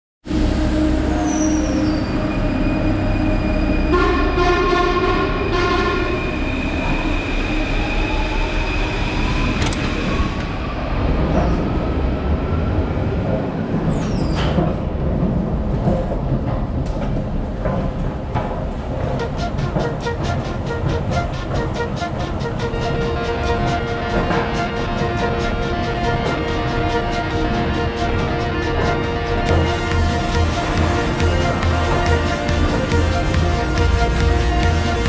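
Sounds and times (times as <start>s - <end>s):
station rumble: 0.2s - 35.0s
high squeal: 0.8s - 4.0s, 5.4s - 10.7s
train door warning tone: 19.2s - 35.0s
train motor whine: 19.2s - 35.0s.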